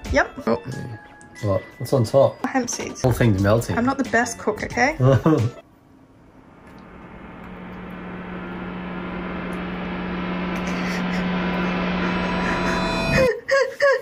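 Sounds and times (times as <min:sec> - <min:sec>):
low hum: 0:05.7 - 0:13.3
hissing riser: 0:06.1 - 0:13.3.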